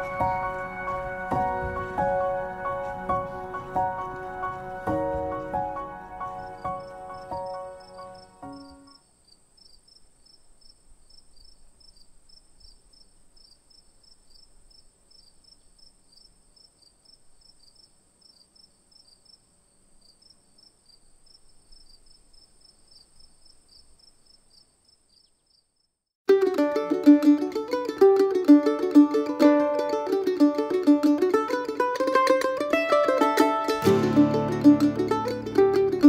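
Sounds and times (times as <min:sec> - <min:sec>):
insect chirping: 0:00.1 - 0:26.1.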